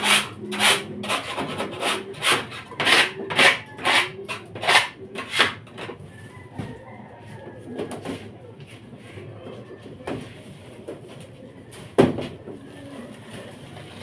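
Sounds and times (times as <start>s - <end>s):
scraping on hard surface: 0.0s - 6.0s.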